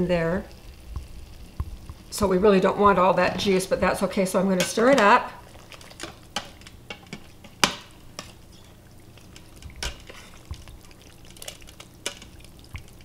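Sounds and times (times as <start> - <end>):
spoon stirring meat in juices: 4.6 - 13.0.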